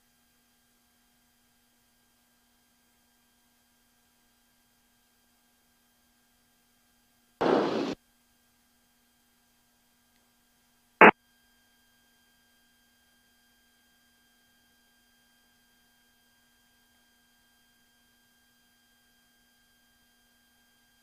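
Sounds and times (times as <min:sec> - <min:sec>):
short loud pop: 0:07.4 - 0:08.0.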